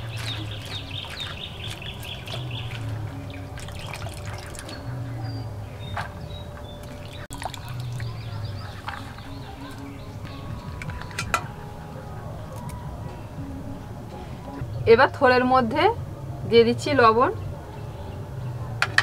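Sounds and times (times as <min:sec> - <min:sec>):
water splashing in steel bowl: 0:00.0 - 0:05.3, 0:06.8 - 0:11.5.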